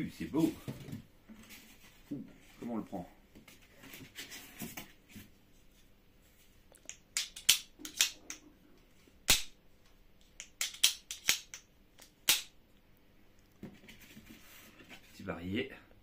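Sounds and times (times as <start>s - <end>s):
air pistol mechanism clicking: 10.3s - 12.5s.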